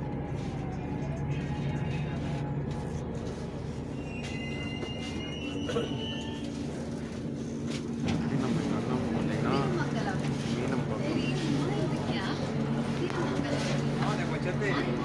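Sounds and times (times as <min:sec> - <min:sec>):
train low hum: 0:00.0 - 0:15.0
train high squeal: 0:03.8 - 0:07.1.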